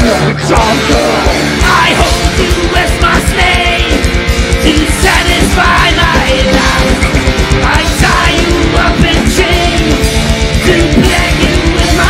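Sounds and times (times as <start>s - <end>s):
heavy metal band playing live: 0.0s - 12.0s
fast kick drum beats: 1.6s - 12.0s.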